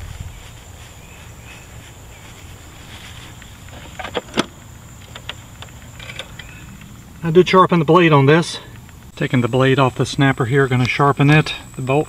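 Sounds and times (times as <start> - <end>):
high-pitched insect drone: 0.0 - 12.0
sharp clicks: 3.4 - 12.0.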